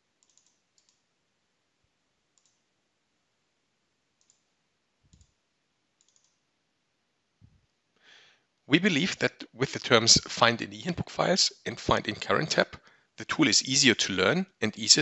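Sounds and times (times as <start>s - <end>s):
computer mouse clicks: 0.2s - 1.0s, 2.4s - 2.6s, 4.2s - 4.4s, 5.1s - 5.4s, 6.0s - 6.4s.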